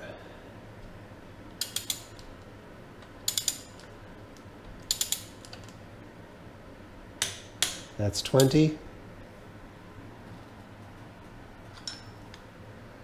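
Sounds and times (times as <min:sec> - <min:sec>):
socket wrench ratchet clicking: 0:01.6 - 0:02.2, 0:03.3 - 0:03.7, 0:04.9 - 0:05.6.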